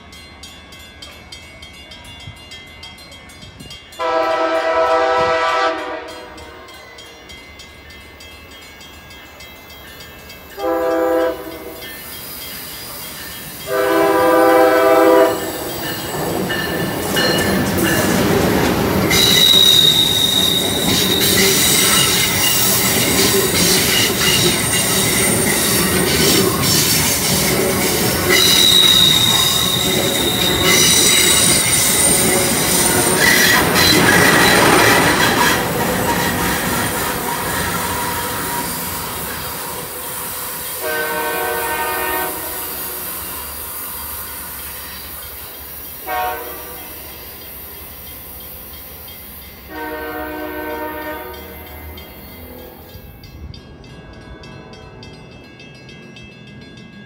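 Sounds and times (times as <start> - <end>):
train rumbling past: 0.0 - 57.0
train horn blasts: 4.0 - 6.8, 10.6 - 11.8, 13.7 - 15.6, 40.8 - 43.0, 46.0 - 47.1, 49.7 - 51.7
high wheel squeal: 19.1 - 40.8.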